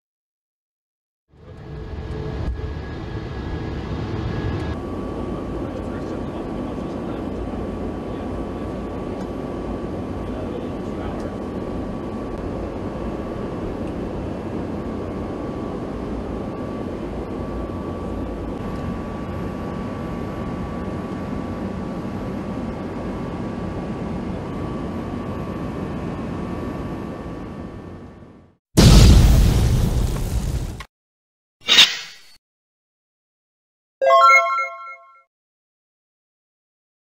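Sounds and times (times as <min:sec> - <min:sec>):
aircraft cockpit engine noise: 0:01.4 - 0:28.6.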